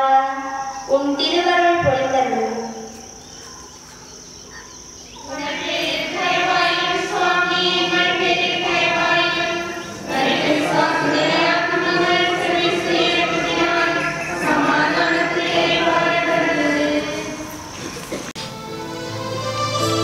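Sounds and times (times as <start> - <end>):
slow hymn singing: 5.1 - 20.0.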